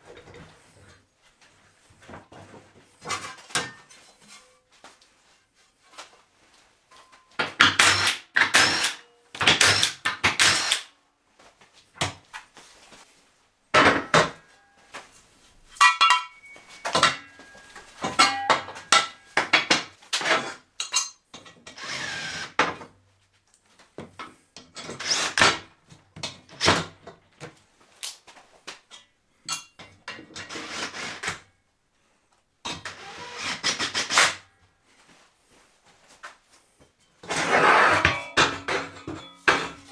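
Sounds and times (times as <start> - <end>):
metallic rings: 15.7 - 19.4, 37.8 - 39.9
steel parts clanking on metal table: 15.8 - 19.2, 20.8 - 21.6, 37.2 - 39.9.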